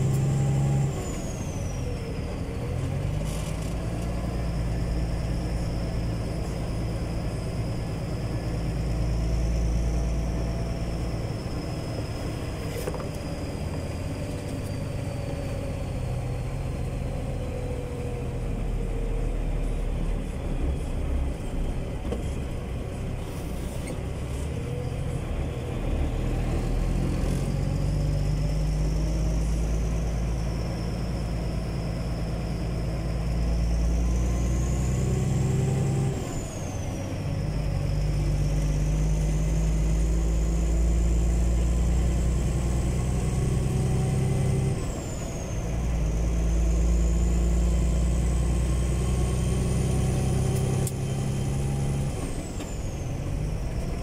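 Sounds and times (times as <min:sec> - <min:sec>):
truck diesel engine running: 0:00.0 - 0:54.0.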